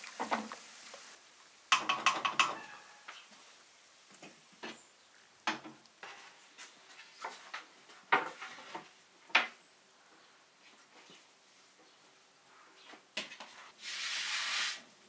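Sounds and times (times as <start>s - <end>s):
wooden knocks and clatters: 1.7s - 2.6s, 5.4s - 6.3s, 7.2s - 9.6s.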